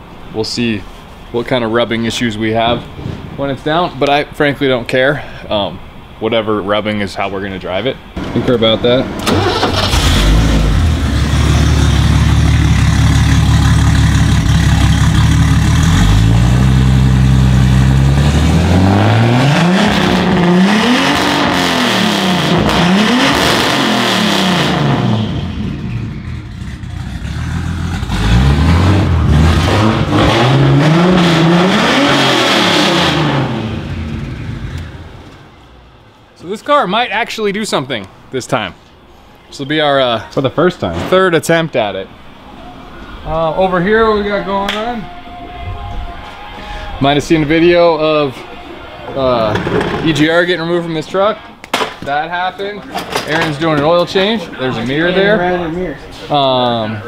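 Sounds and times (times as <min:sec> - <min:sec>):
car engine idling and revving: 0:08.2 - 0:36.0.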